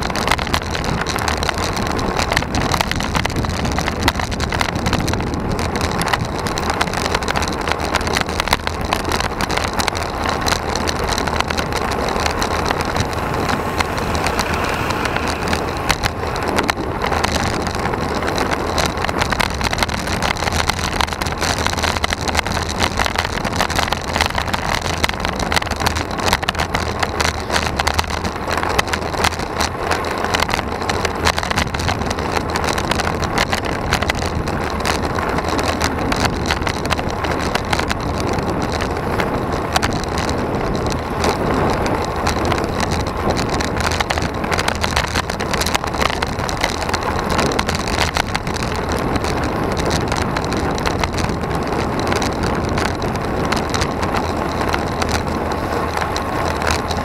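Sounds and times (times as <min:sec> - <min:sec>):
rattling from asphalt: 0:00.0 - 0:57.0
wind rushing: 0:09.1 - 0:19.5.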